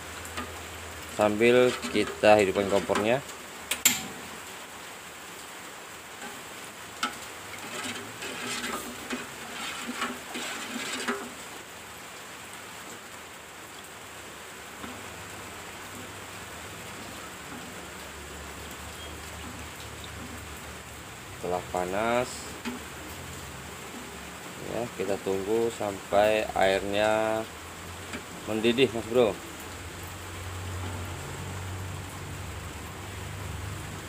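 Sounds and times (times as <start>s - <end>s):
steady low hiss: 0.0s - 34.0s
spoon stirring in metal pot: 0.4s - 4.1s, 6.2s - 11.4s, 21.6s - 23.1s.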